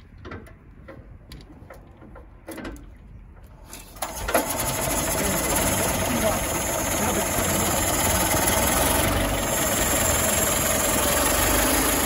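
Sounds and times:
engine running steadily: 0:00.0 - 0:12.0
bus engine hand-cranked: 0:03.6 - 0:12.0.

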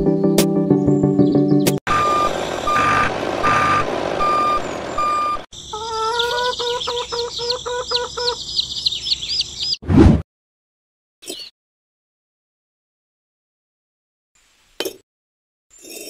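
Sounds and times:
engine rumble: 0:01.9 - 0:05.5
truck reversing beeper: 0:01.9 - 0:05.5
birds chirping and calling: 0:04.6 - 0:09.8, 0:11.2 - 0:11.5.

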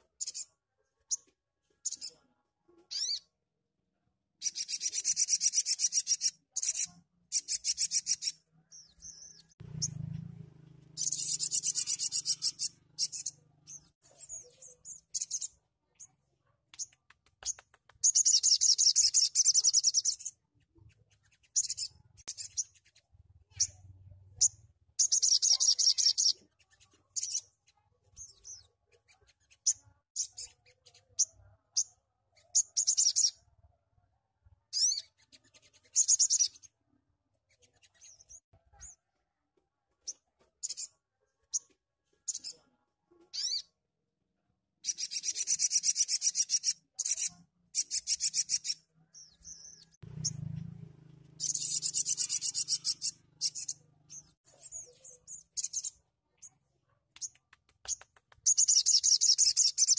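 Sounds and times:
bird high chirps: 0:00.0 - 0:02.2, 0:02.9 - 0:03.4, 0:04.4 - 0:10.2, 0:10.9 - 0:33.5, 0:34.7 - 0:36.7, 0:40.0 - 0:42.6, 0:43.2 - 0:43.8, 0:44.8 - 0:50.5, 0:51.4 - 0:56.6, 0:57.2 - 0:59.9.

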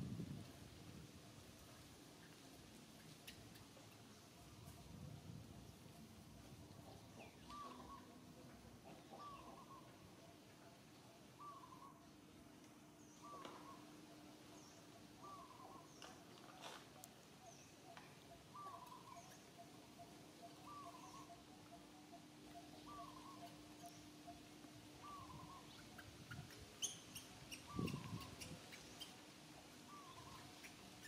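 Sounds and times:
faint steady hum: 0:00.0 - 0:31.0
bird calling: 0:06.8 - 0:12.1, 0:13.0 - 0:29.2, 0:29.8 - 0:30.9.

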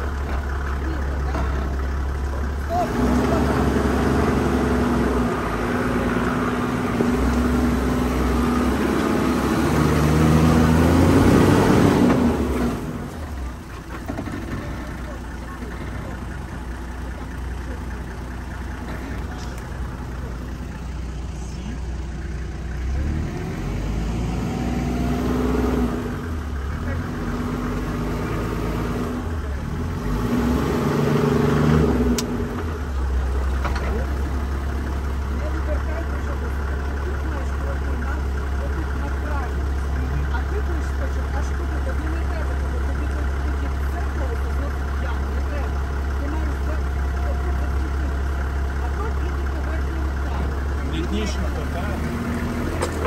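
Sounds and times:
car engine running: 0:00.0 - 0:53.0.

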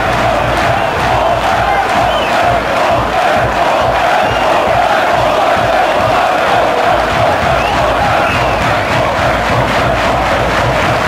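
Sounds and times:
crowd cheering and shouting: 0:00.0 - 0:11.0.

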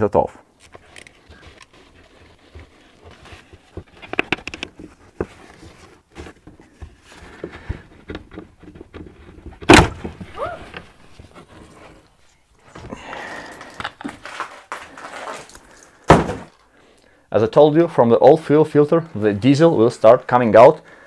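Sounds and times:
clicks and scrapes of hand work: 0:00.6 - 0:12.1.

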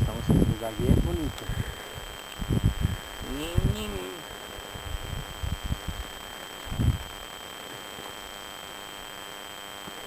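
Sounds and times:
wind gusting against microphone: 0:00.0 - 0:07.3
faint high-pitched whine and hiss: 0:00.0 - 0:10.0.

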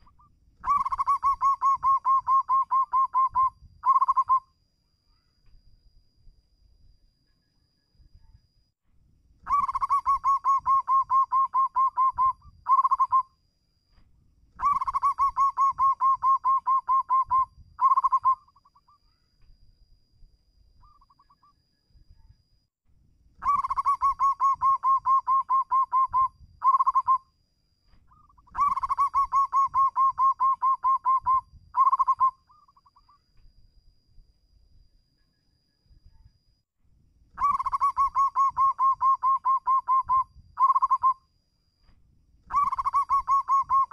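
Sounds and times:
dove cooing: 0:00.0 - 0:04.4, 0:09.5 - 0:13.2, 0:14.6 - 0:18.9, 0:23.4 - 0:27.2, 0:28.1 - 0:33.1, 0:37.4 - 0:41.2, 0:42.5 - 0:43.9.

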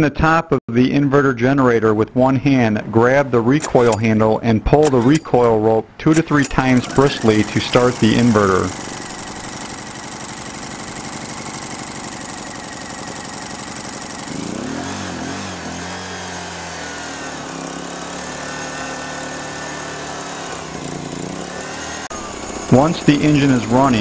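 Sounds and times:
generator engine running: 0:06.2 - 0:24.0.

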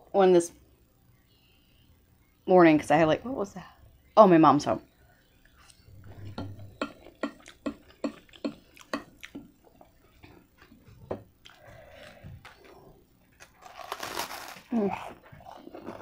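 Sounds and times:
wet chewing: 0:06.8 - 0:13.9.

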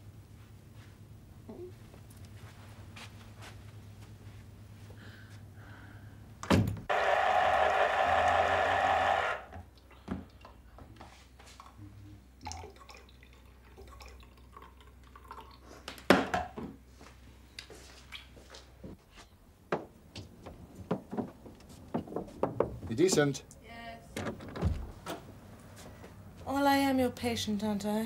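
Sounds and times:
electric juicer motor running: 0:06.9 - 0:09.5
juice pouring: 0:12.4 - 0:15.7.

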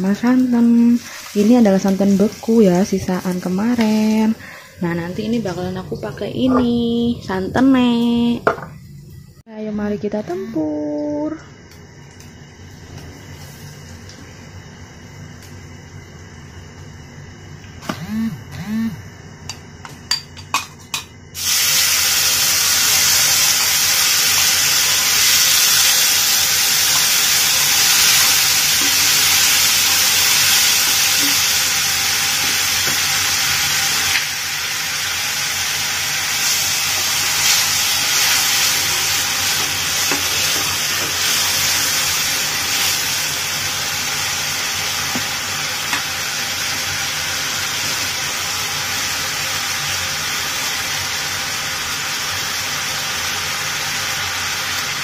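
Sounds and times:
liquid sizzling in hot oil: 0:00.0 - 0:04.8, 0:21.2 - 0:55.0.

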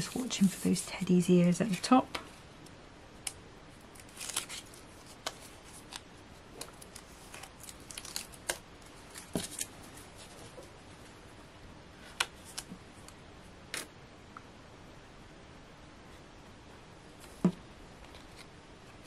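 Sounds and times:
paper rustling: 0:03.9 - 0:10.6.

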